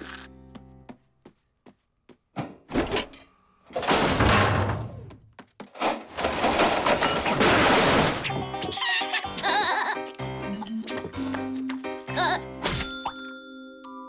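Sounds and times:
cartoon clattering crashes: 5.8s - 8.4s
music: 8.1s - 14.0s.

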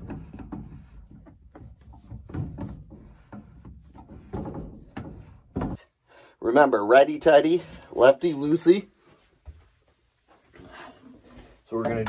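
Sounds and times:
plastic knocks and scrapes: 0.0s - 5.8s.

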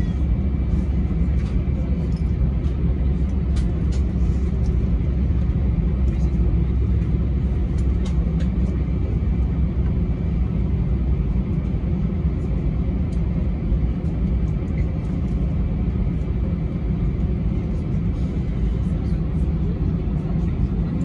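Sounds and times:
jet engine low rumble: 0.0s - 21.0s.

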